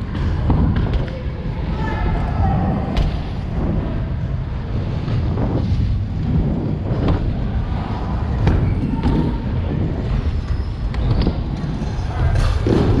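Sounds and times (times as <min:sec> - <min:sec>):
bike tyres rumbling on wood: 0:02.9 - 0:13.0.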